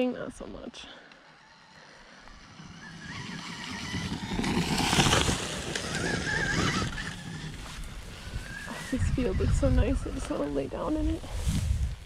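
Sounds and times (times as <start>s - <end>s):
electric dirt bike motor whine: 1.2s - 10.6s.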